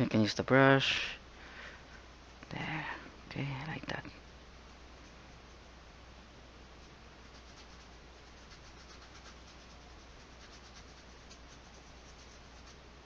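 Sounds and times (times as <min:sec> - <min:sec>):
steady hiss: 0:00.0 - 0:13.0
paintbrush scrubbing canvas: 0:07.2 - 0:12.8.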